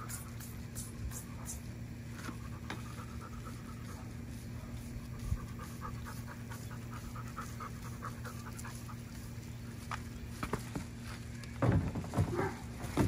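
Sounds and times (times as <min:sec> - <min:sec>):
steady low hum: 0:00.0 - 0:13.0
dog panting: 0:02.2 - 0:09.4.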